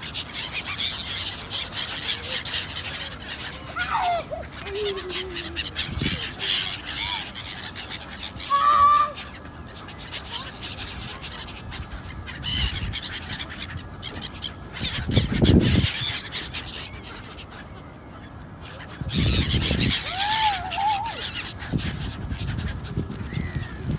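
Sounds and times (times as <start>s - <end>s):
gulls calling: 0.0s - 23.9s
wind rumbling on microphone: 14.8s - 16.1s, 19.0s - 20.9s, 21.6s - 23.9s.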